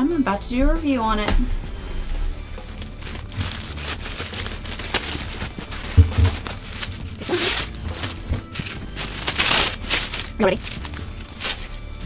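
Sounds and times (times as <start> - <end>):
paper and plastic rustling: 2.5 - 12.0.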